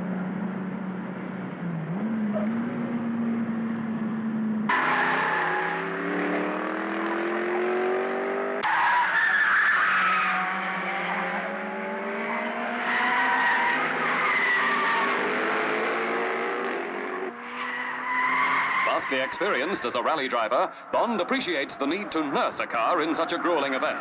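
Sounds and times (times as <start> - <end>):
racing car engines accelerating: 0.0 - 24.0
tyres squealing: 17.7 - 24.0.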